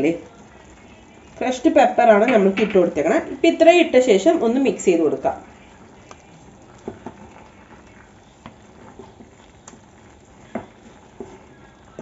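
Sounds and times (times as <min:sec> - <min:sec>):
faint hiss of cooking: 0:00.0 - 0:12.0
wooden spatula scraping a pan: 0:06.8 - 0:12.0.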